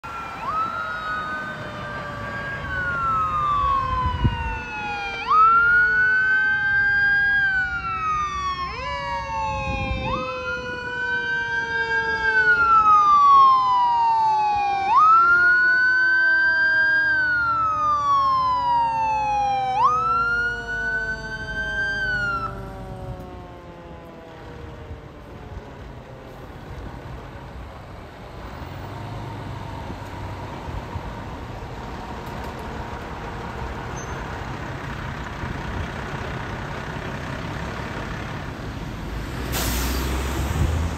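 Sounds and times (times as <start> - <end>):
lower falling siren tone: 0.0 - 26.3
fire engine siren wailing: 0.0 - 40.9
truck engine running: 30.7 - 38.8.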